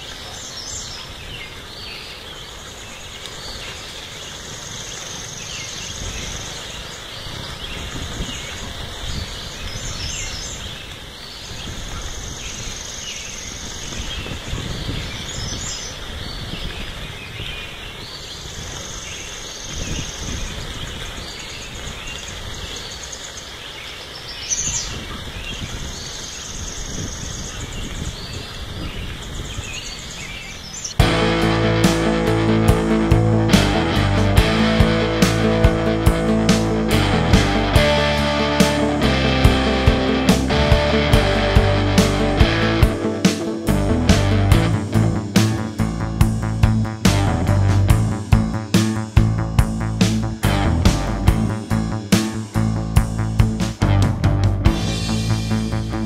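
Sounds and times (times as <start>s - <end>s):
high insect chorus: 0.0s - 16.1s
uneven low rumble: 31.0s - 56.0s.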